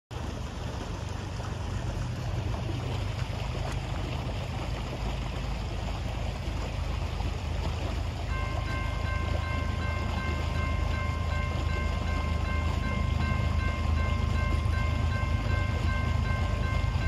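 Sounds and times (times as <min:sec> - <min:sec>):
railroad crossing bell ringing: 0:08.2 - 0:17.0.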